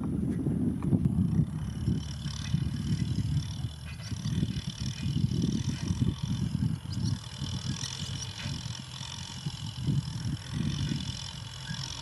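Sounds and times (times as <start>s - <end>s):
tractor diesel engines rumbling: 0.0s - 12.0s.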